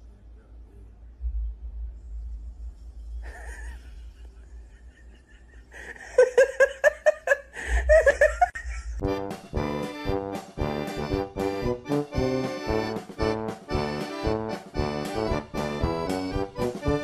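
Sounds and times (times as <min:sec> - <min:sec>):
person laughing: 0:03.2 - 0:09.0
accordion music: 0:09.0 - 0:17.0.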